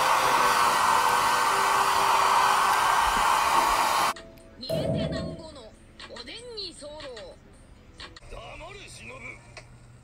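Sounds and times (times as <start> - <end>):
hair dryer blowing: 0.0 - 4.2.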